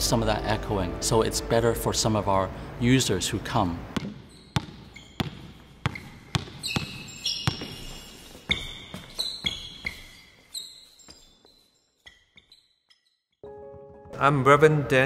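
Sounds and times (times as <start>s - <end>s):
sneakers squeaking: 3.9s - 13.4s
ball bouncing on gym floor: 4.0s - 9.7s.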